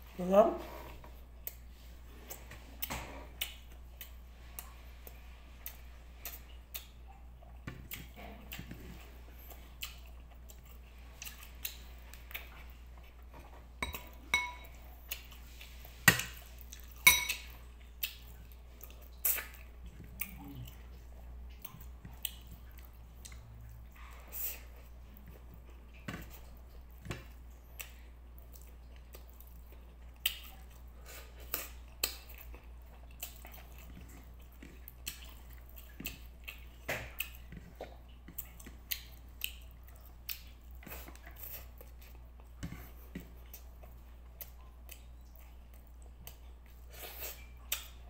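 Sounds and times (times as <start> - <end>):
spoon clinking on ceramic plate: 13.8 - 14.8, 17.1 - 17.5.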